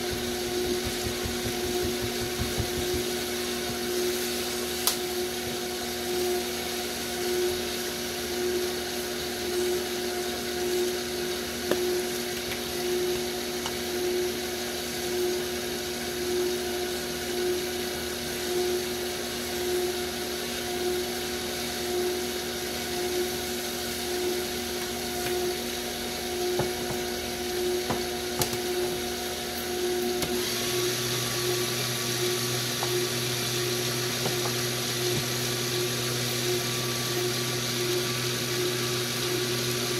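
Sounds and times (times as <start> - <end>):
motor humming: 0.0 - 5.0.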